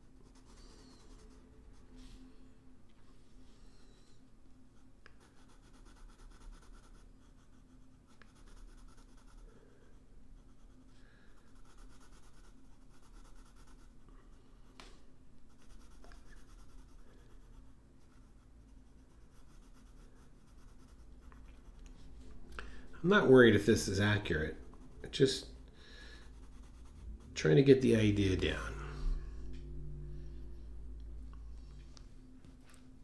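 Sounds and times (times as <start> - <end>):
pencil scratching on paper: 0.0 - 1.9, 4.8 - 14.0, 15.5 - 21.9, 23.2 - 28.6.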